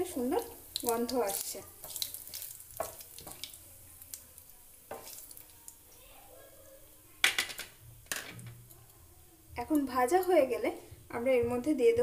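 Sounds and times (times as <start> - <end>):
spices sizzling in oil: 0.0 - 11.9
wooden spatula scraping a pan: 1.2 - 3.8.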